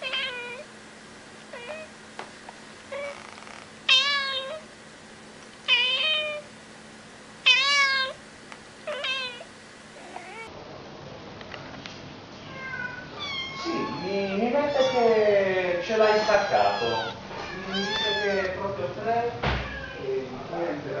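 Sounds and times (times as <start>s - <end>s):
cat meowing: 0.0s - 0.7s, 1.5s - 1.9s, 2.9s - 4.7s, 5.7s - 6.5s, 7.4s - 8.2s, 8.8s - 10.5s, 12.4s - 15.2s, 15.9s - 18.7s, 19.6s - 20.1s.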